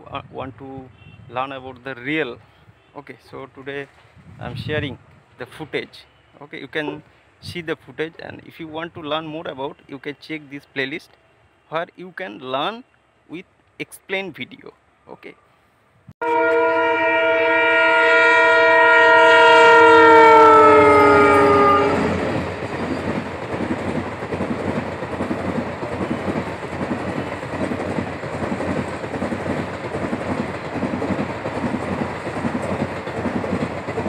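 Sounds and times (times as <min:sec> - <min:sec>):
train horn: 0:16.2 - 0:22.3
train coaches rumbling past: 0:16.2 - 0:34.0
wheels clickety-clack on track: 0:22.0 - 0:34.0.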